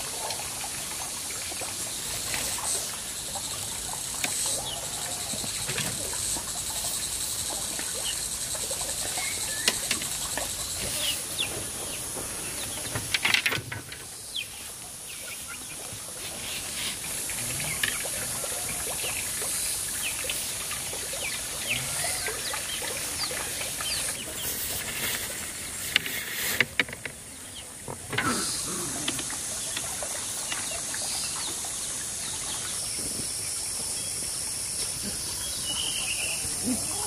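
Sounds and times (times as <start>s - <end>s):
insects droning: 0.0s - 37.0s
bird chirps: 9.1s - 9.9s, 35.4s - 37.0s.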